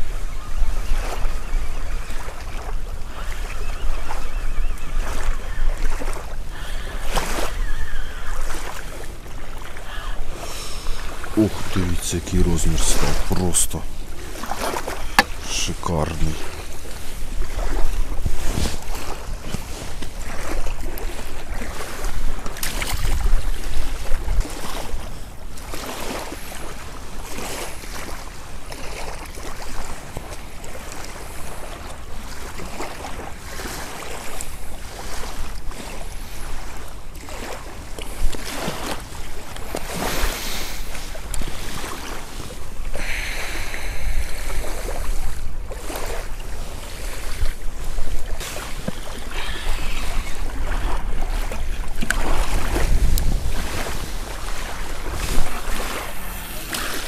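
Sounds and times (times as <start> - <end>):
water washing at riverbank: 0.0 - 57.0
wind gusting over microphone: 10.2 - 20.4, 39.8 - 57.0.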